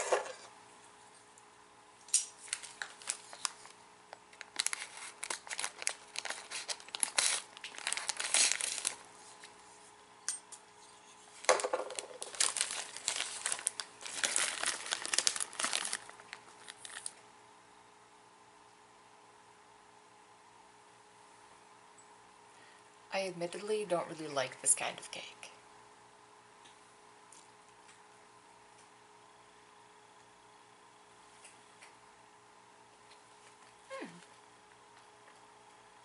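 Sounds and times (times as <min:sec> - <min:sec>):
plastic snack bag crinkling: 0:02.4 - 0:09.6, 0:11.4 - 0:17.2.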